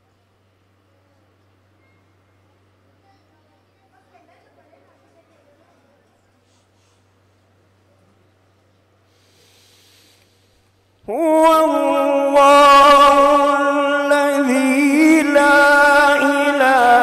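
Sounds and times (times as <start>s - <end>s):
man reciting melodically: 11.0s - 17.0s.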